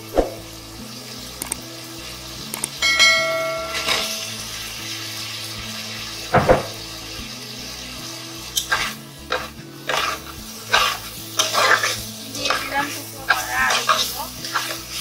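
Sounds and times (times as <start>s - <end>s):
light sizzle: 0.0s - 15.0s
metal spatula scraping a pan: 8.5s - 15.0s.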